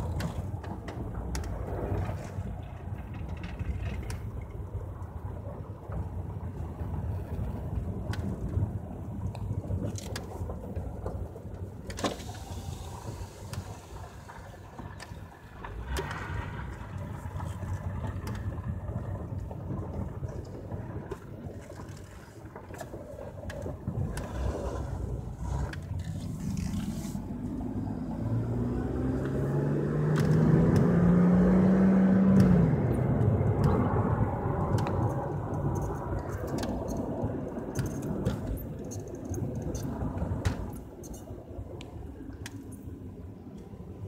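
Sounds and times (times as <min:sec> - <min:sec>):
road noise: 0:00.0 - 0:44.0
car engine accelerating: 0:23.6 - 0:38.6.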